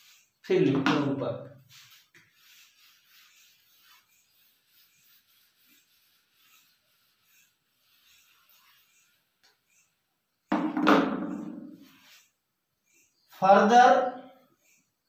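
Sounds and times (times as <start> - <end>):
duster rubbing on whiteboard: 0.0 - 15.0.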